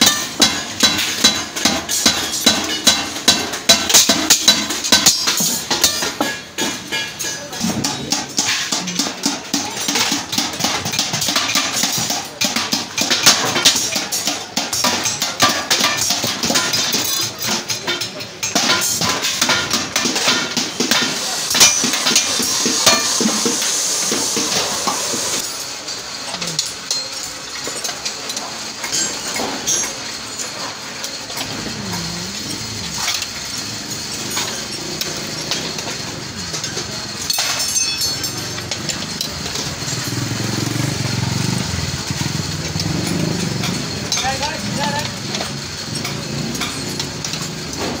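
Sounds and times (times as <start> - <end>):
metallic clinks of steel rods: 25.4 - 48.0
vehicle engine running: 38.3 - 48.0.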